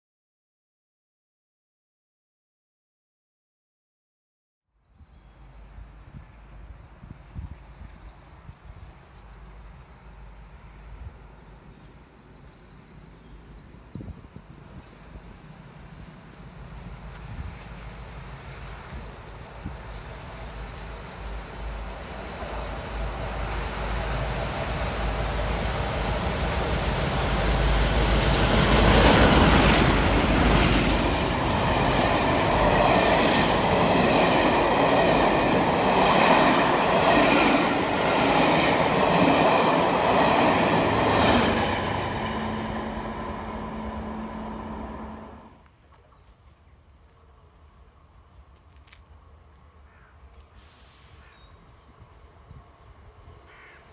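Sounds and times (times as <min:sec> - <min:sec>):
diesel locomotives passing: 0:05.4 - 0:13.2, 0:14.4 - 0:45.6.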